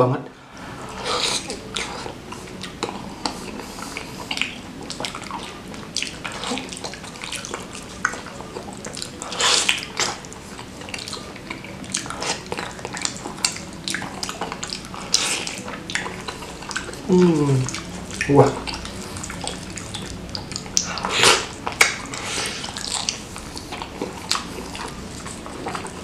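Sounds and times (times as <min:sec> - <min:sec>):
wet chewing: 0:00.5 - 0:26.0
mouth clicks and smacks: 0:01.0 - 0:26.0.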